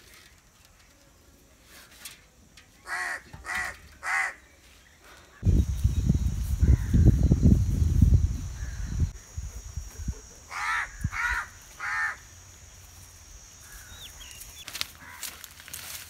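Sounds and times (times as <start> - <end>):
crow cawing: 2.9 - 4.4, 10.5 - 12.2, 13.6 - 14.0, 15.0 - 15.4.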